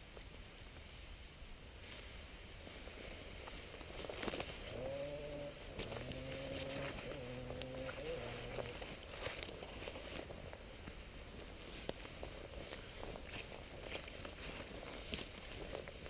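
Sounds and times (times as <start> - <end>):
low steady hum: 0.0 - 16.0
footsteps through dry grass: 1.7 - 16.0
stalks and twigs crackling: 1.8 - 16.0.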